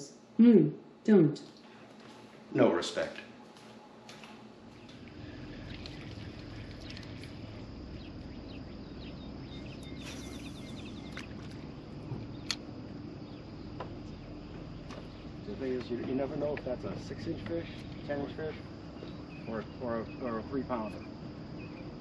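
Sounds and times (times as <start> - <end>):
rapid chirping trill: 6.0 - 12.5.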